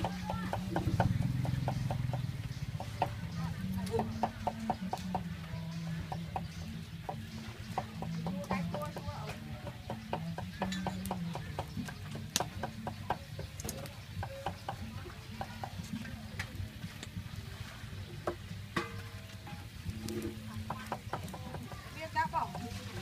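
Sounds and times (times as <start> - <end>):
chickens clucking: 0.0 - 23.0.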